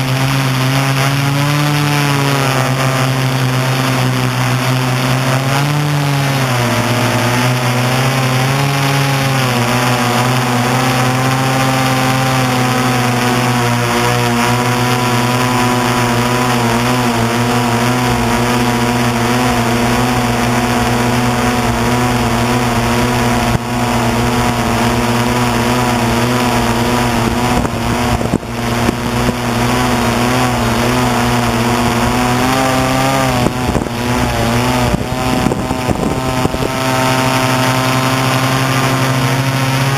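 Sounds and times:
drone motors humming: 0:00.0 - 0:39.9.

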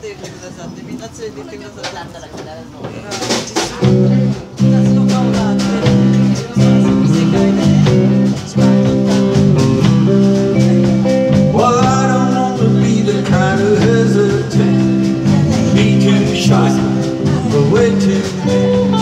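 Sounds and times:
drum kit beat: 0:01.8 - 0:19.0
acoustic guitar: 0:03.2 - 0:19.0
electric guitar: 0:03.6 - 0:19.0
electric bass: 0:03.8 - 0:19.0.

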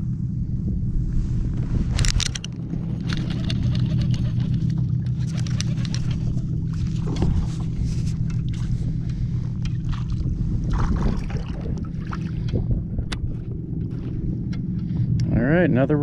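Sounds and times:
wind rumble: 0:00.0 - 0:16.0
water slapping kayak hull: 0:03.1 - 0:12.9.

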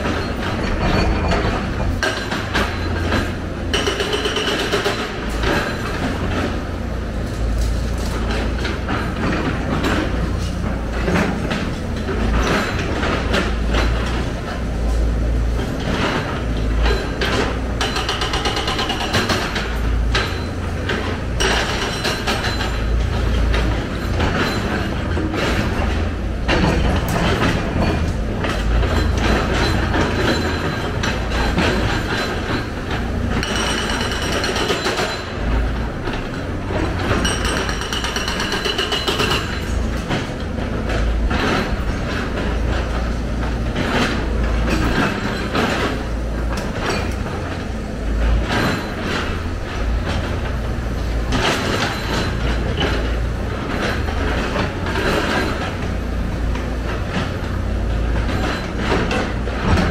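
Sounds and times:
excavator diesel engine running: 0:00.0 - 0:59.9
hydraulics working: 0:00.0 - 0:59.9.

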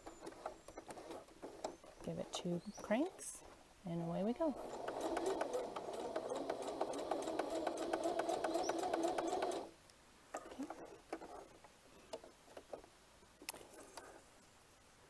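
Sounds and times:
sewing machine stitching: 0:00.0 - 0:02.2, 0:02.9 - 0:09.7.

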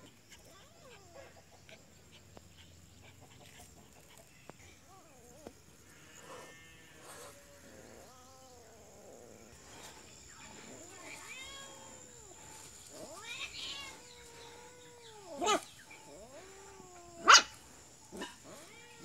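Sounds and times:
cat yowling: 0:13.0 - 0:17.6.

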